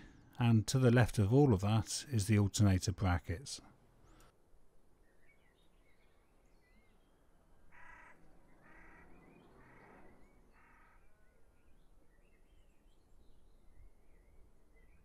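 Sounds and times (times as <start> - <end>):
birds chirping: 5.0 - 15.0
harsh bird caws: 7.7 - 11.1.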